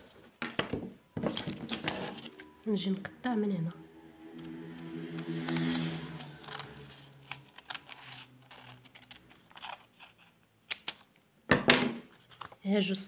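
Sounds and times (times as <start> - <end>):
paper rustling: 1.2 - 2.6, 5.5 - 11.1, 12.1 - 12.6
scissors snipping paper: 5.2 - 11.1.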